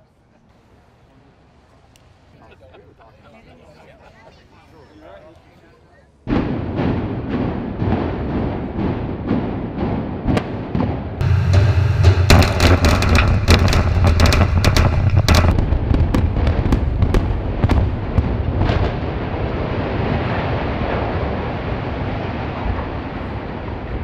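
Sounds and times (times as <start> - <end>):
demolition rumbling: 6.3 - 24.0
explosive charges cracking and banging: 6.3 - 24.0.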